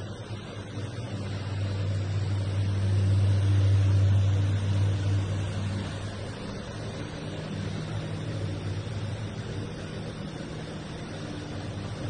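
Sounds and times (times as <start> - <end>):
low mechanical drone: 0.0 - 12.0.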